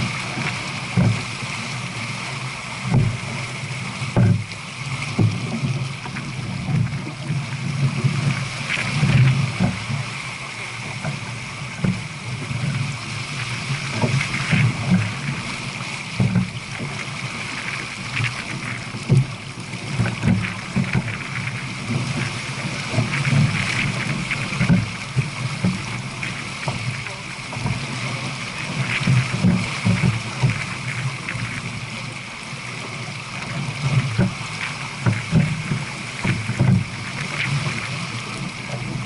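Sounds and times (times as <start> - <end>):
water rushing past boat hull: 0.0 - 39.0.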